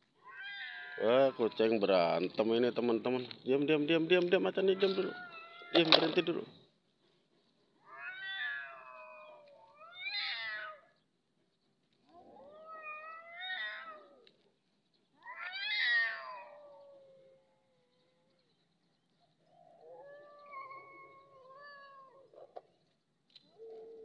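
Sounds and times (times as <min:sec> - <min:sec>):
cats yowling: 0:00.2 - 0:01.8, 0:04.6 - 0:06.2, 0:07.8 - 0:11.0, 0:12.0 - 0:14.4, 0:15.1 - 0:18.5, 0:19.4 - 0:22.6.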